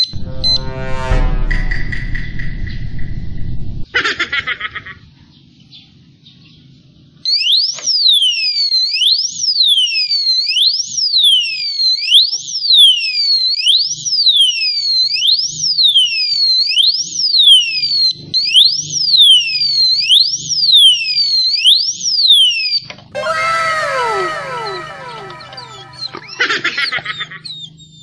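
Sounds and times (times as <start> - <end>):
electronic alarm siren wailing: 23.2 - 26.6.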